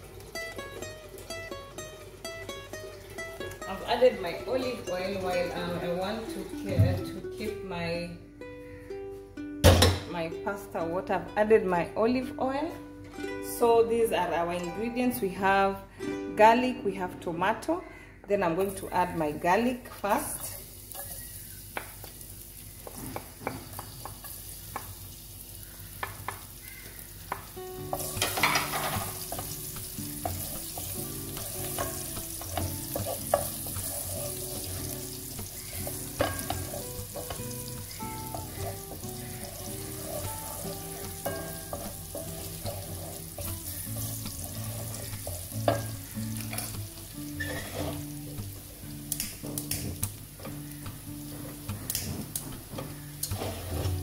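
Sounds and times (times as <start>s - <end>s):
garlic sizzling in oil: 0.0s - 7.0s, 19.6s - 54.0s
soft background music: 0.0s - 20.6s, 27.2s - 54.0s
wooden spoon scraping a pan: 27.9s - 46.7s, 47.4s - 48.4s, 53.2s - 54.0s.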